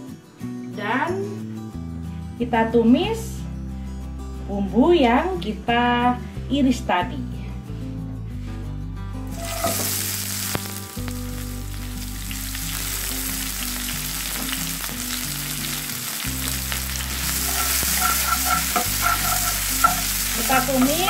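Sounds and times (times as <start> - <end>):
food sizzling in hot oil: 9.3 - 21.0
spatula stirring and scraping: 9.4 - 10.0, 17.0 - 21.0.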